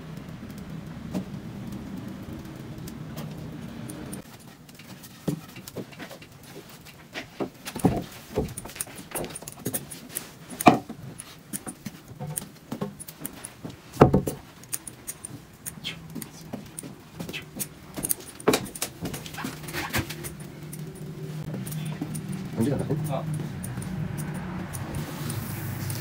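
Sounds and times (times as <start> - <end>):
loud wooden knocks: 14.0 - 14.4.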